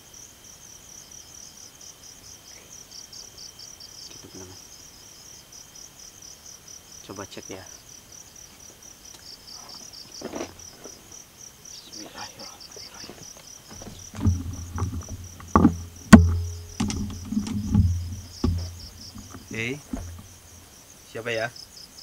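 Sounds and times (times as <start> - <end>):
crickets chirping: 0.0 - 22.0
thumps of person moving: 13.0 - 20.6
low rumbling handling noise: 13.7 - 20.7
sharp loud knock: 14.2 - 20.4.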